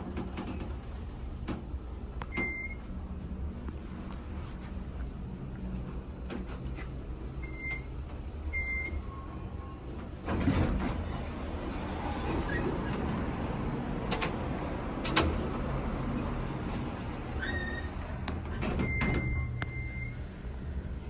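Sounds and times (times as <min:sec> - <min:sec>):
elevator doors sliding open: 0:00.0 - 0:03.5, 0:04.8 - 0:21.0
elevator humming: 0:00.6 - 0:21.0
short beeps: 0:18.9 - 0:20.2.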